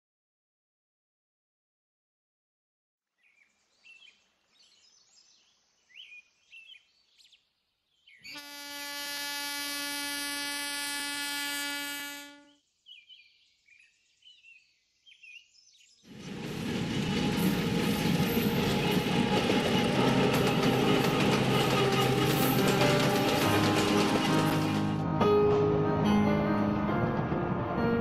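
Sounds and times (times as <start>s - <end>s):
locomotive horn blast: 8.3s - 12.6s
train rumble: 16.1s - 28.0s.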